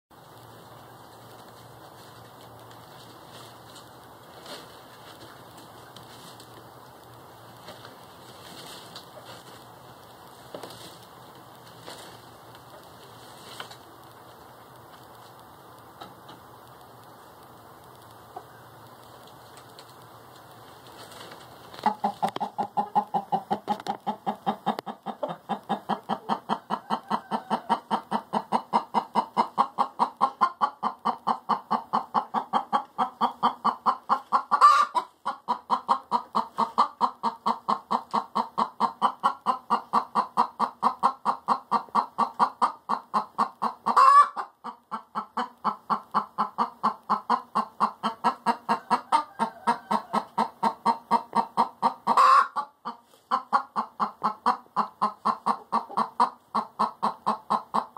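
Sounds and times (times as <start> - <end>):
hen clucking: 18.1 - 57.9.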